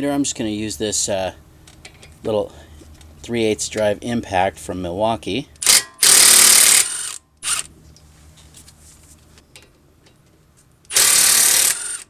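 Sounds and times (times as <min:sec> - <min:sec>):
impact wrench running: 0:05.6 - 0:07.7, 0:10.9 - 0:12.0.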